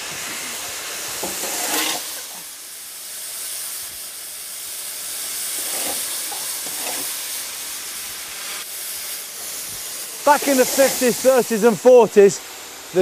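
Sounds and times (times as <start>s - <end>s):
steam hissing from locomotive: 0.0s - 13.0s.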